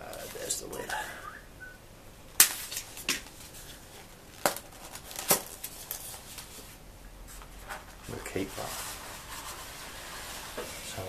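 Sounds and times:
styrofoam cracking and creaking: 4.3 - 6.2
faint rubbing of foam: 6.1 - 11.0.

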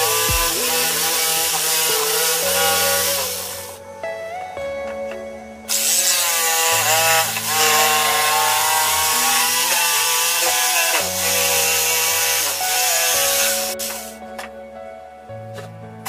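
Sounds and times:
jigsaw cutting wood: 0.0 - 3.8, 5.7 - 14.1
music playing: 0.0 - 16.0.

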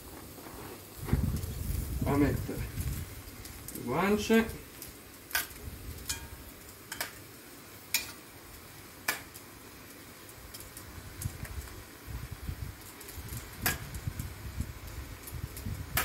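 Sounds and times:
metal tongs clicking against pot: 5.3 - 7.2, 7.9 - 8.2, 9.1 - 9.4.

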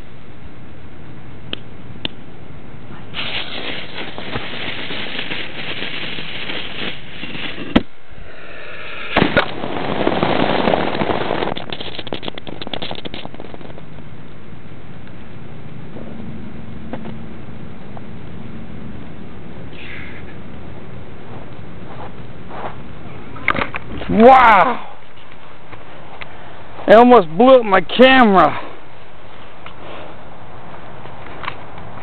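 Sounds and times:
firework fizzing and crackling: 3.1 - 14.0
dense crackling and pops: 3.2 - 7.9, 9.1 - 14.4
sharp bangs: 9.0 - 13.8.

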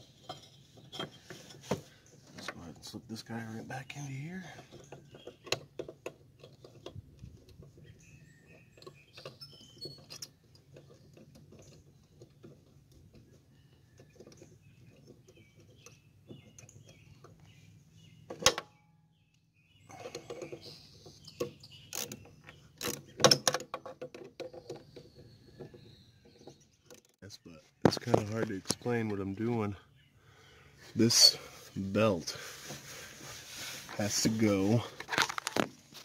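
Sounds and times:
belt and pulley clicks and knocks: 4.6 - 17.5, 20.0 - 27.2.

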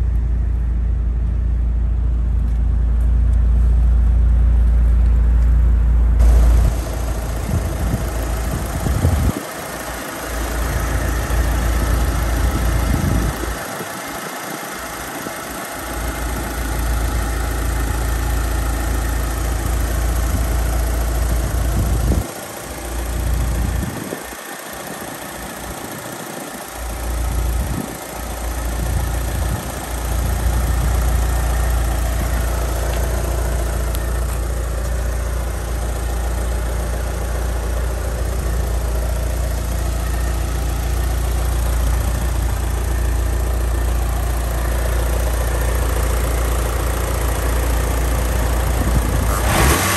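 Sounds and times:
car engine idling: 0.0 - 49.9
wind rumble on microphone: 6.4 - 9.4, 12.5 - 13.8, 21.4 - 22.4, 23.5 - 24.3, 48.8 - 49.5.

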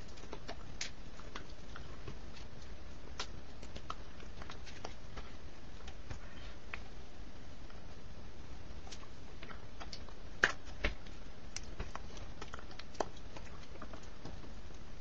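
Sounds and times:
steady background hiss: 0.0 - 15.0
sharp snaps: 2.4 - 5.0.

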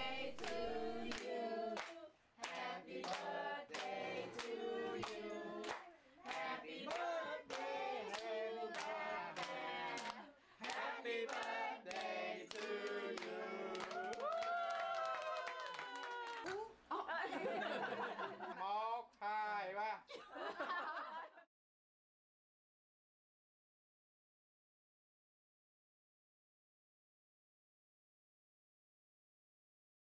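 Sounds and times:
group singing: 0.0 - 14.2
hands clapping: 0.4 - 16.7.

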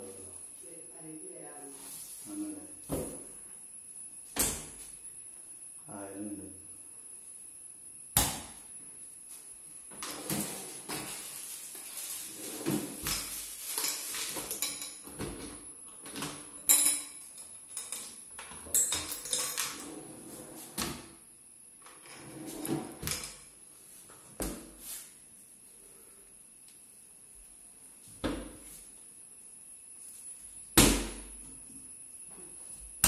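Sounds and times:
drawer sliding out: 12.3 - 13.0, 22.0 - 23.3.

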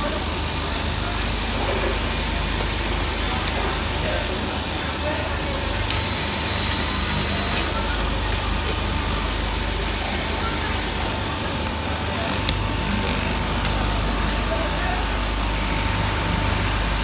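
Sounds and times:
electric motor whining: 5.8 - 8.4.

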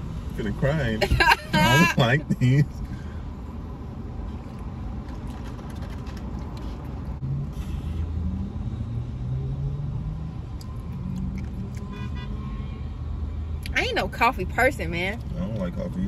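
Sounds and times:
car idling: 0.0 - 8.0.

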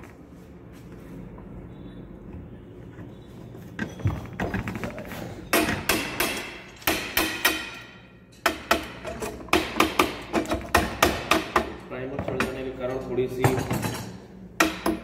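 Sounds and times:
hammer striking steel: 5.5 - 11.8, 13.4 - 15.0.

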